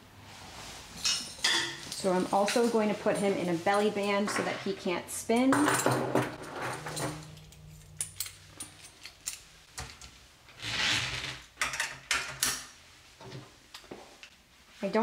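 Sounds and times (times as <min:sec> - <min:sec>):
metal clips clicking and clattering: 0:05.4 - 0:10.1.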